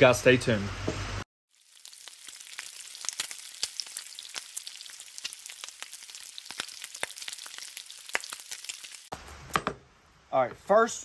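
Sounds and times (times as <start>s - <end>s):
food sizzling on griddle: 1.5s - 9.1s
fat crackling and popping: 1.5s - 9.7s.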